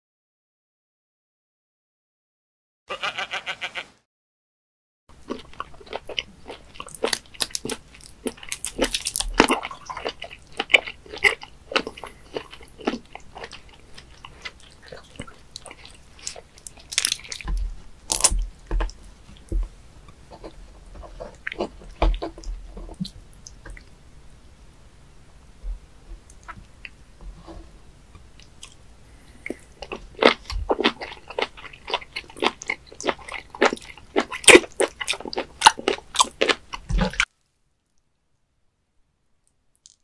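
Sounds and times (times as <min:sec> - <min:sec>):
wet chewing and sucking: 0:05.2 - 0:19.7, 0:20.3 - 0:23.9, 0:28.4 - 0:37.3.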